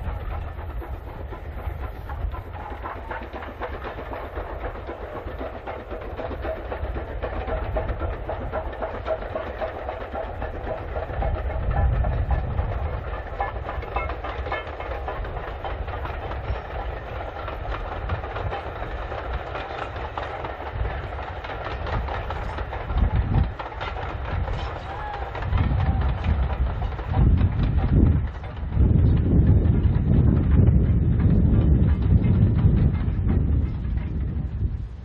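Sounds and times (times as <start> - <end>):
steam locomotive chuffing: 0.0 - 35.0
wheels clattering on rails: 0.0 - 35.0.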